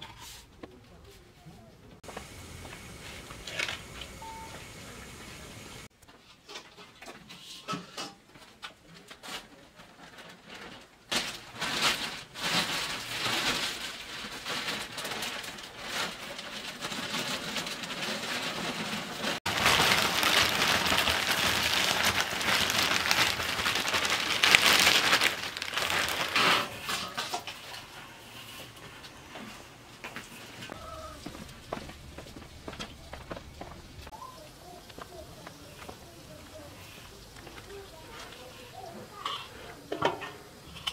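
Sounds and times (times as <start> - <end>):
plastic bag rustling: 9.2 - 39.6.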